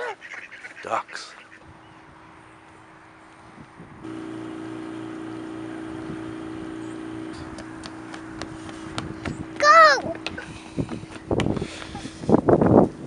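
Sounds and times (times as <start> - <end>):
low machine hum: 4.0 - 12.1
toddler footsteps on wooden bridge: 7.5 - 12.1.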